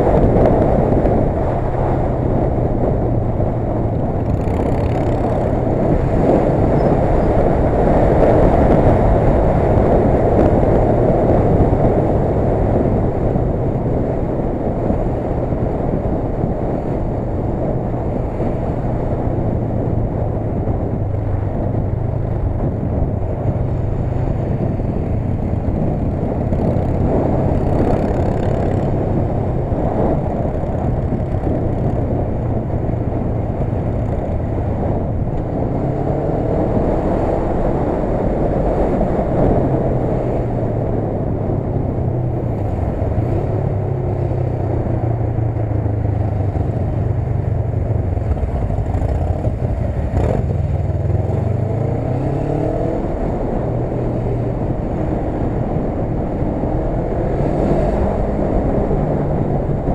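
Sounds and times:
motorcycle engine hum: 0.0s - 59.9s
wind and road noise: 0.0s - 59.9s.

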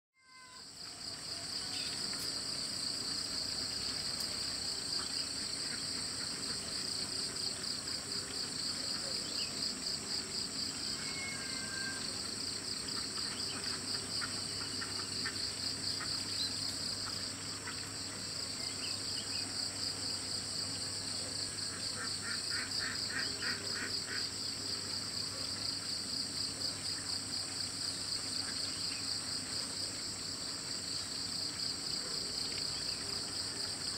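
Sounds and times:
insects trilling: 0.2s - 33.9s
faint bird chirps: 10.9s - 12.2s.

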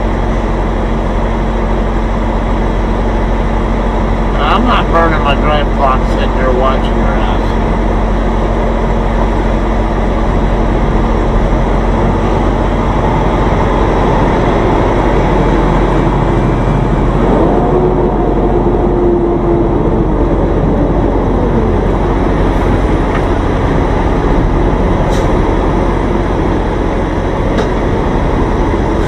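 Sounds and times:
truck diesel engine running: 0.0s - 29.0s.

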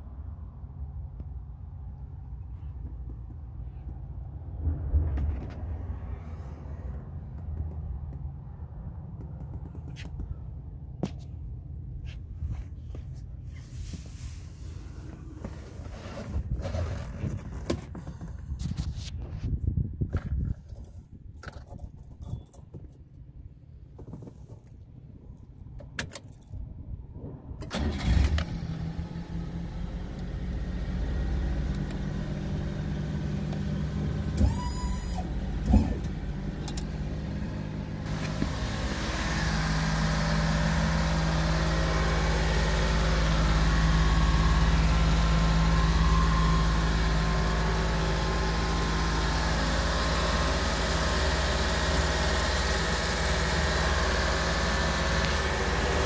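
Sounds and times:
small engine starting and idling: 27.6s - 36.8s, 38.0s - 56.0s.

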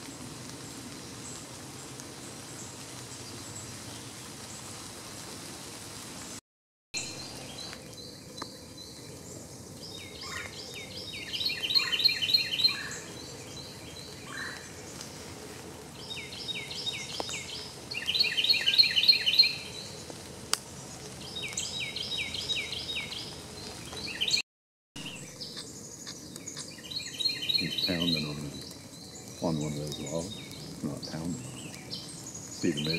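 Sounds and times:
outdoor background noise: 0.0s - 6.4s, 7.0s - 24.4s, 25.0s - 32.9s
songbird singing: 7.0s - 24.4s, 25.0s - 32.9s.

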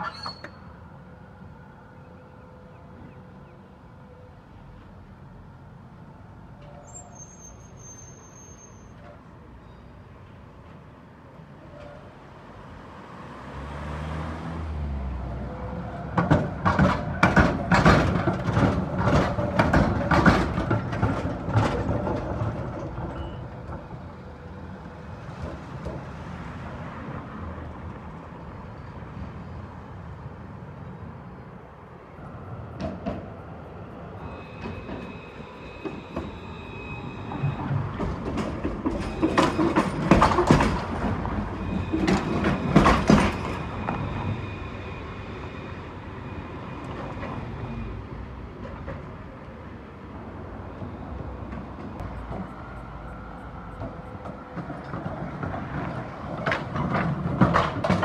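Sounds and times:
low street hum: 0.0s - 58.0s
tram wheels clicking over rail joints: 15.3s - 29.3s, 32.6s - 58.0s.

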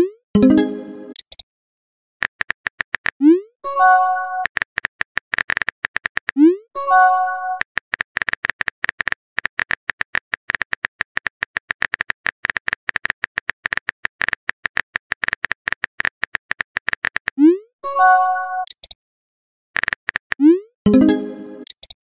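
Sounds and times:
message chime: 0.4s - 1.2s, 20.9s - 21.6s
keyboard typing clicks: 0.4s - 1.4s, 18.6s - 19.0s, 19.8s - 22.0s.

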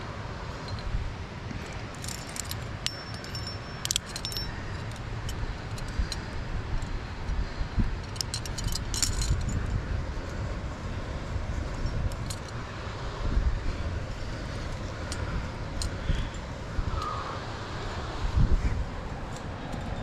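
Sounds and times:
steady low rumble: 0.0s - 20.0s
metal climbing gear clinking: 0.6s - 10.4s, 11.7s - 12.7s, 19.2s - 20.0s.

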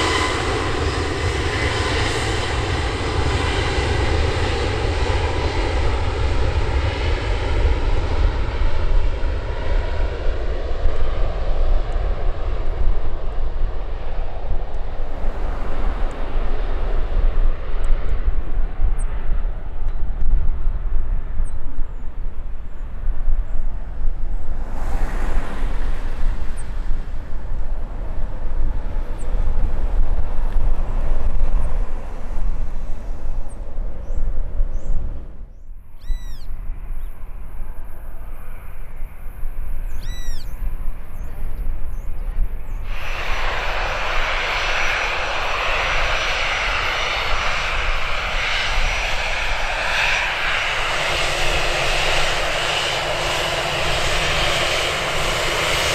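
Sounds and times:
hissing jet noise with whine: 0.0s - 55.9s
jet engine low rumble: 0.0s - 55.9s
bird chirping calls: 33.4s - 37.2s, 39.8s - 40.6s.

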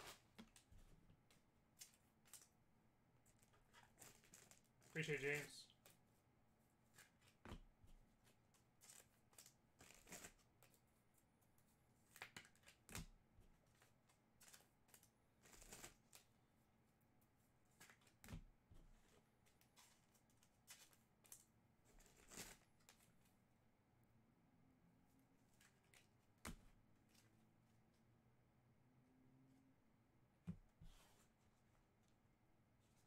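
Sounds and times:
trading cards rustling and clicking: 3.3s - 6.0s, 8.2s - 10.8s, 13.7s - 16.2s, 19.0s - 23.2s.

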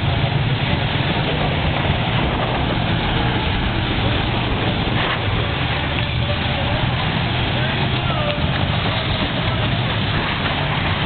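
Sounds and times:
car engines running: 0.0s - 11.0s
murmur of voices: 3.8s - 11.0s.

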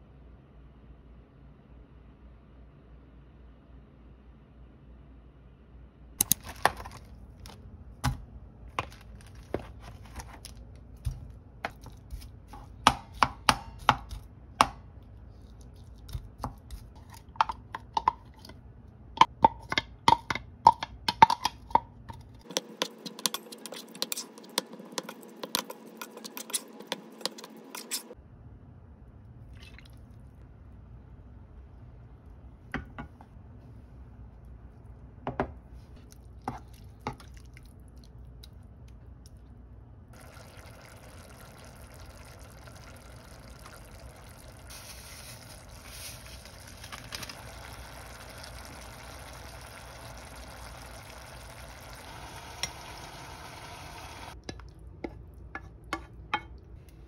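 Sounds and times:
meat sizzling in frying pan: 40.2s - 54.4s.

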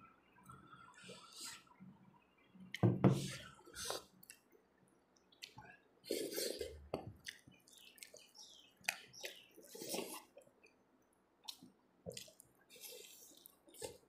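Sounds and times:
wet chewing sounds: 5.2s - 10.8s, 11.4s - 14.0s
fingers squishing food: 6.9s - 10.8s.

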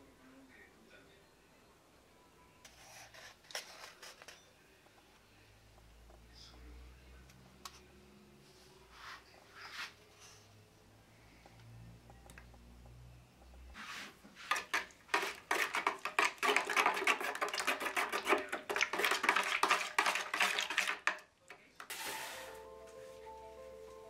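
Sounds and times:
stirrer scraping plastic bucket: 13.8s - 21.2s.

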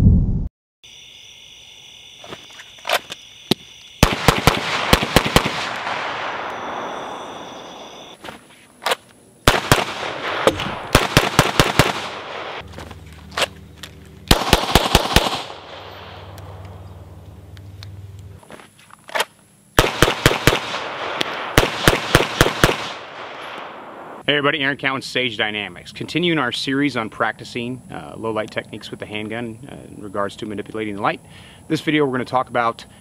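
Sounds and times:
handgun shots with echo: 14.3s - 16.7s.

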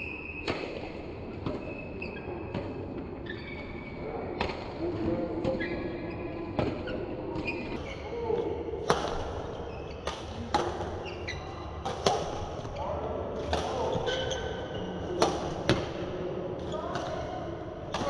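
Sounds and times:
court shoes squeaking: 0.0s - 4.6s, 5.4s - 8.1s, 8.9s - 12.8s, 13.4s - 16.0s
voices in hall: 0.0s - 18.0s
rackets hitting shuttlecock: 6.5s - 7.8s, 11.8s - 12.7s, 13.4s - 16.1s.

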